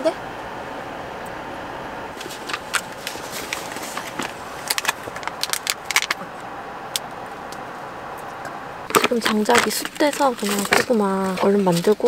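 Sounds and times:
foil pouch crinkling: 2.2s - 6.2s.

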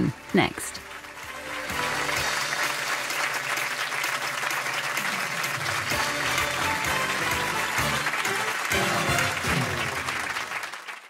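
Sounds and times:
theme music: 0.0s - 11.0s
audience applauding: 0.8s - 11.0s.

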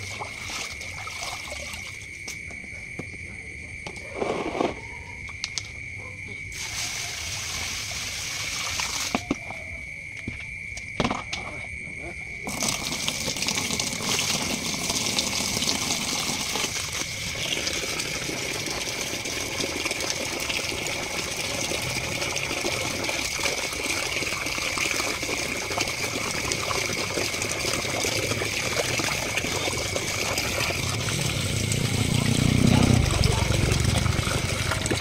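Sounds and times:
water gushing from a hose: 0.0s - 2.1s, 6.5s - 9.2s, 12.5s - 35.0s
steady high whine: 30.6s - 35.0s.

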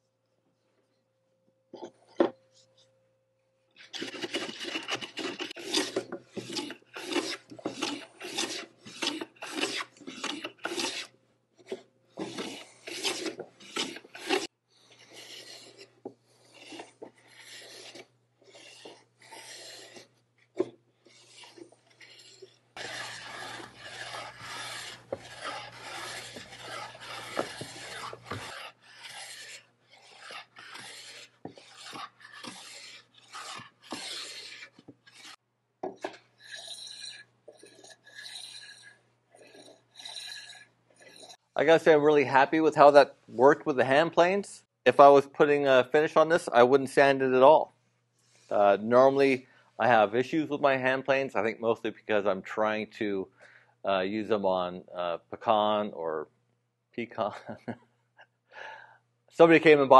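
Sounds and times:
hand plane shaving wood: 3.8s - 35.4s, 36.0s - 41.4s.

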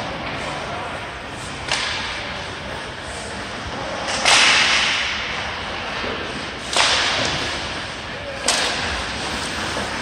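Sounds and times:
loud sharp crack echoing: 4.1s - 5.4s, 6.6s - 7.6s.

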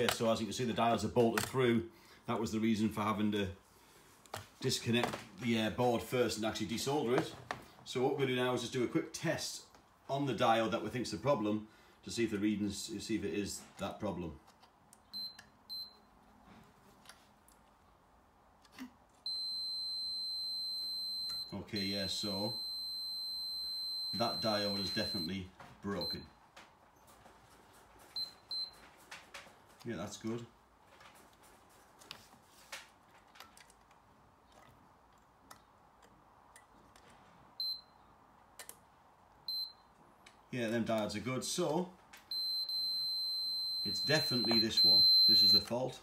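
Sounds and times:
high-pitched multimeter beep: 19.3s - 25.4s, 42.3s - 45.7s.

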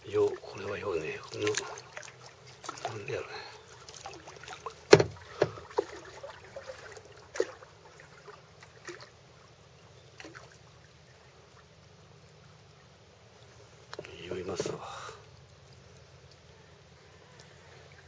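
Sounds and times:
paddle splashing water: 0.0s - 16.4s
paddle knocking against kayak hull: 4.8s - 6.1s.

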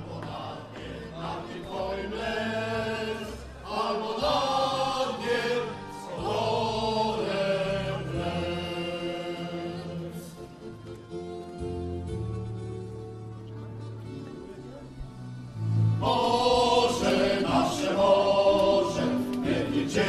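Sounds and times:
voices chanting together: 0.0s - 10.4s, 15.9s - 20.0s.

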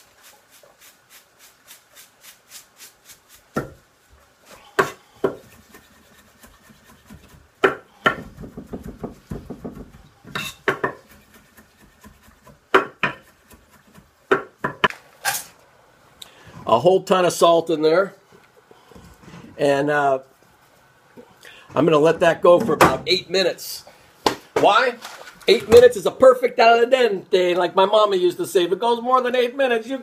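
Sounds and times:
knife chopping on wooden board: 4.8s - 5.8s, 6.4s - 14.9s.

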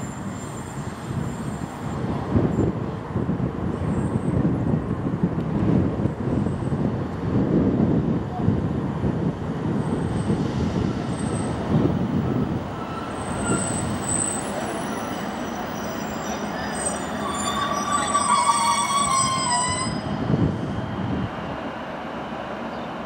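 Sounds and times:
diesel railcar engine rumble: 0.0s - 23.0s
high-pitched wheel squeal: 12.7s - 20.2s.

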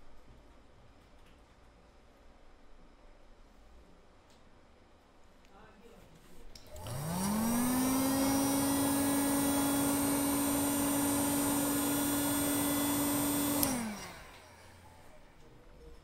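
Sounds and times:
heat gun fan whining and hissing: 6.5s - 15.6s.

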